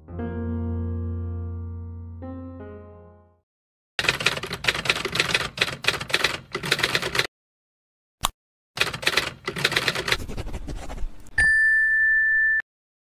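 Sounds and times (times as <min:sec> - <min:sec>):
rapid clicking: 0:08.8 - 0:10.2.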